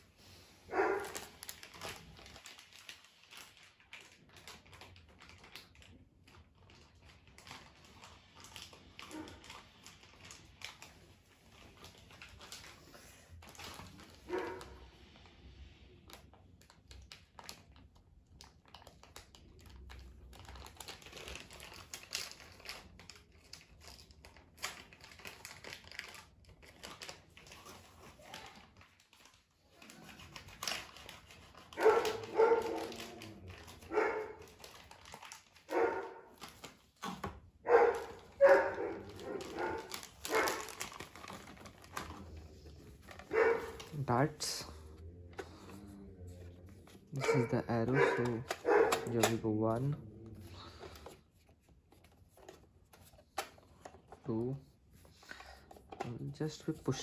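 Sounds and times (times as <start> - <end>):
dog barking: 0.7 - 1.3, 14.3 - 14.8, 31.7 - 33.1, 33.9 - 34.5, 35.7 - 36.3, 37.6 - 40.7, 43.3 - 43.8, 47.1 - 49.3.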